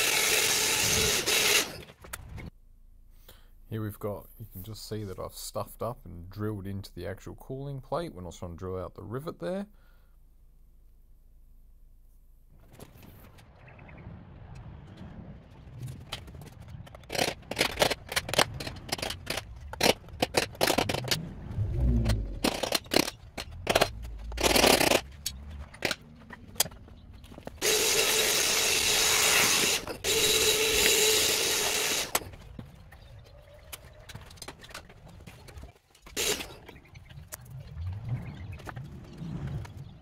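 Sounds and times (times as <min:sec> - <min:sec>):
power tool running: 0:00.0 - 0:01.9, 0:27.6 - 0:32.3
metal hand tools clicking and scraping: 0:17.1 - 0:21.2, 0:22.0 - 0:26.8.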